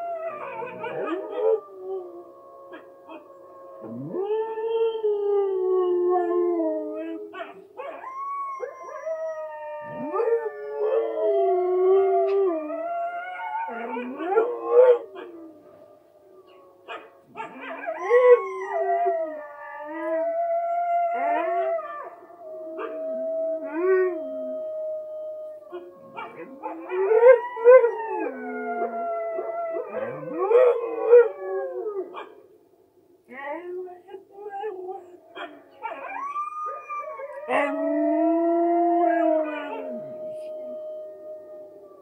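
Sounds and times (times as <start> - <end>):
husky howling: 0.0 - 32.4, 33.5 - 42.0
wolf pack howling from a tv: 25.7 - 31.3.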